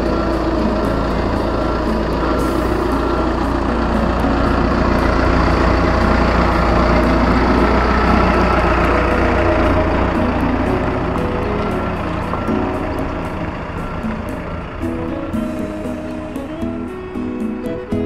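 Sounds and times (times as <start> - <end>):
forklift engine running: 0.0 - 18.0.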